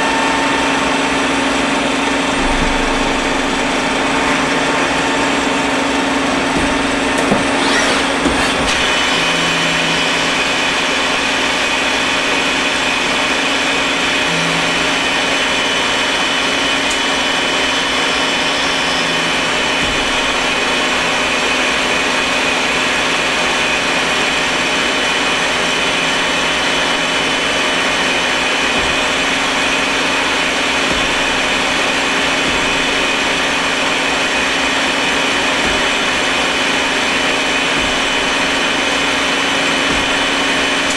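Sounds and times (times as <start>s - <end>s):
lathe machine whirring: 0.0s - 40.9s
milling tool whine: 0.0s - 40.9s
short knocks: 35.5s - 40.9s.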